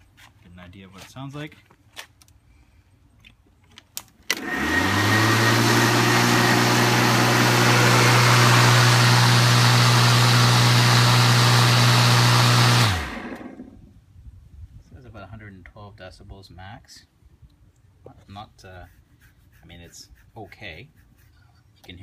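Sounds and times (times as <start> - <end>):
electric mower motor humming: 4.3 - 13.8.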